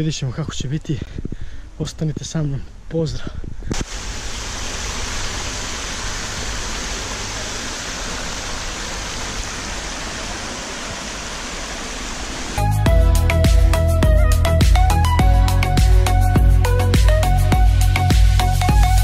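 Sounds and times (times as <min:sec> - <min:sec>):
water splashing into a creek: 0:03.7 - 0:12.6
music: 0:12.6 - 0:19.0.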